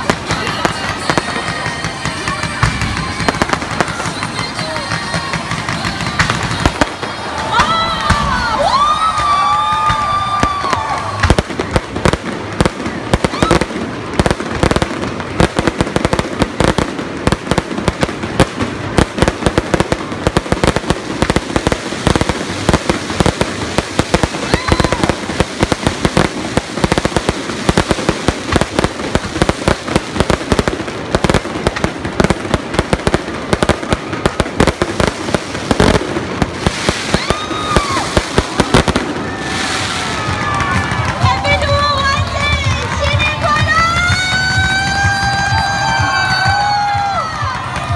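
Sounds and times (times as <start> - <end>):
fireworks banging and crackling: 0.0 - 47.9.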